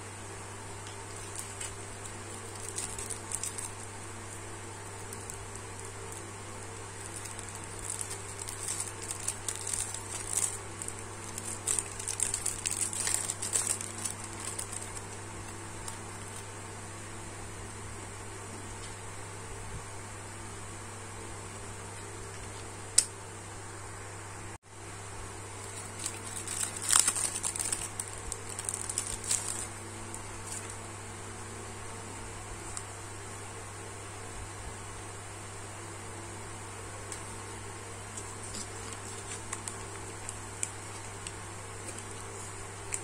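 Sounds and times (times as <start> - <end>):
steady low hum: 0.0 - 43.0
plastic sachet crinkling: 0.8 - 16.6, 25.6 - 30.8, 38.2 - 43.0.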